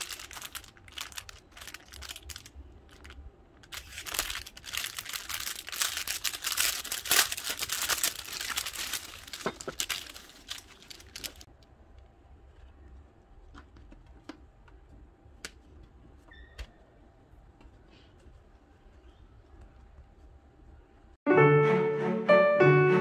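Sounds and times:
plastic packaging crinkling: 0:00.0 - 0:11.6.

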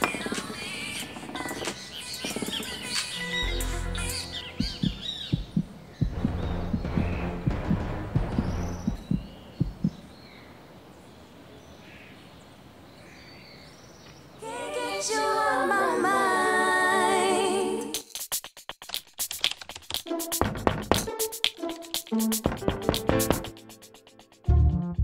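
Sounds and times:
person singing with vibrato: 0:00.0 - 0:05.1, 0:14.4 - 0:18.0
stuttering electronic music: 0:02.3 - 0:09.3, 0:17.9 - 0:25.0
pulsing beat: 0:03.4 - 0:10.0, 0:18.0 - 0:25.0.

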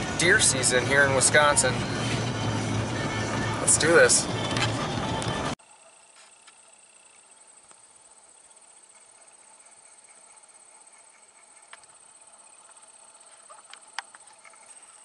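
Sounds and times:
insects trilling: 0:05.6 - 0:15.0.

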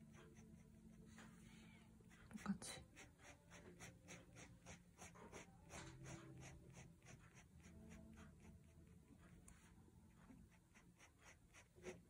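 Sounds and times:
pen scratching on paper: 0:02.0 - 0:12.0.

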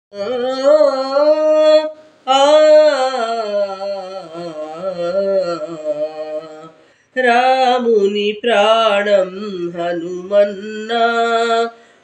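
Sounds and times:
person singing unaccompanied: 0:00.1 - 0:12.0
short breath: 0:06.8 - 0:07.2, 0:11.7 - 0:12.0.

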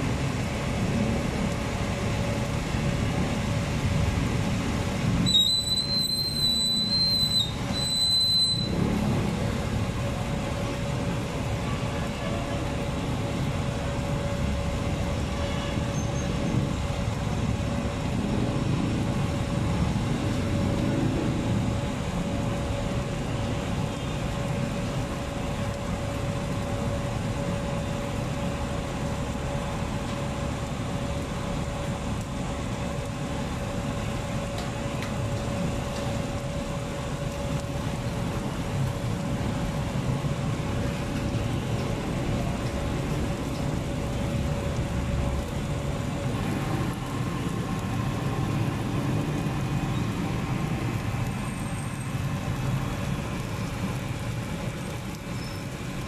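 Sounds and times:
low traffic rumble: 0:00.0 - 0:56.0
high whistle tone: 0:05.2 - 0:08.8.

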